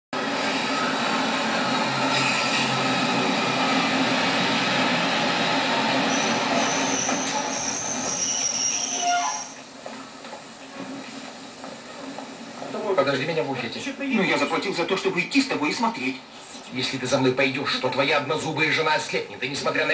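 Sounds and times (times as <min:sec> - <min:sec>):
train rumbling into station: 0:00.1 - 0:19.9
high wheel squeal: 0:00.4 - 0:09.7.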